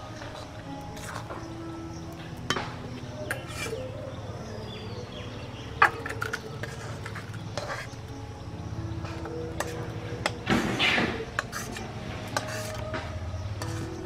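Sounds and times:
steel spatula scraping a pan: 0:00.4 - 0:01.4, 0:02.4 - 0:04.0, 0:05.8 - 0:08.2, 0:09.0 - 0:14.0.

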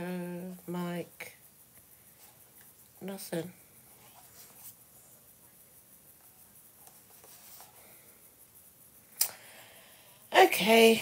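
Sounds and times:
faint ticks: 0:01.2 - 0:03.1.

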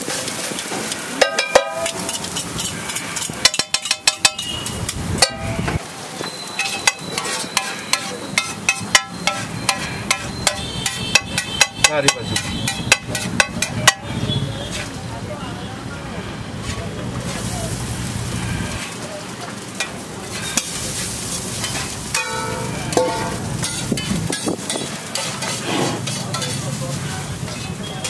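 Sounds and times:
metal spatula scraping iron griddle: 0:00.0 - 0:15.0, 0:16.6 - 0:19.0, 0:19.6 - 0:28.0
sharp spatula taps: 0:01.2 - 0:05.8, 0:06.6 - 0:14.1
ringing metallic clanks: 0:03.4 - 0:05.6, 0:06.2 - 0:14.0, 0:22.1 - 0:24.8.

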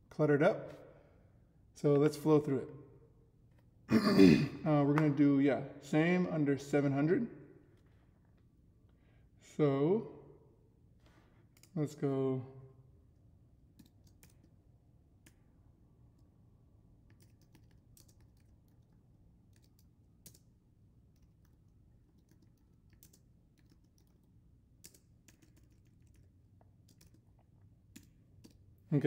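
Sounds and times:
low steady hum: 0:00.0 - 0:29.0
keyboard typing: 0:13.7 - 0:14.6, 0:17.1 - 0:28.6.

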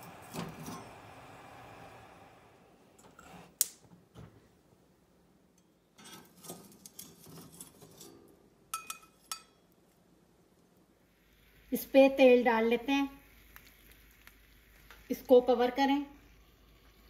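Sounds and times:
gas burner flame hiss: 0:00.0 - 0:03.8, 0:10.9 - 0:17.0
tongs clinking against steel bowl: 0:08.7 - 0:09.6.

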